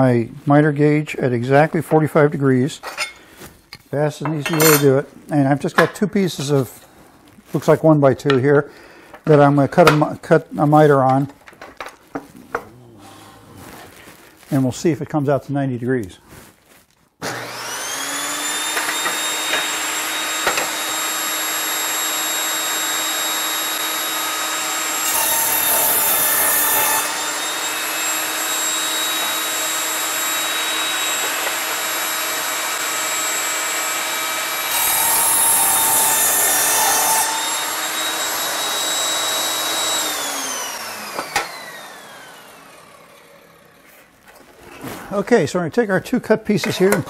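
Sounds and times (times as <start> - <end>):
table saw whining: 4.3 - 5.0, 17.2 - 43.9
saw blade spinning down: 17.2 - 43.8
saw cutting wood: 17.2 - 44.0.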